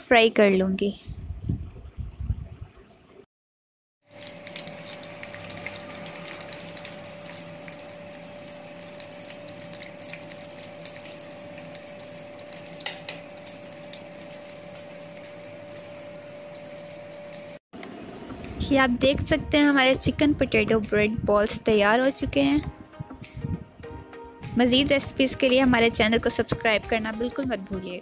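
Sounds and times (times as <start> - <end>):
hot oil sizzling and crackling: 4.0 - 17.6
faint steady hum: 4.1 - 18.7.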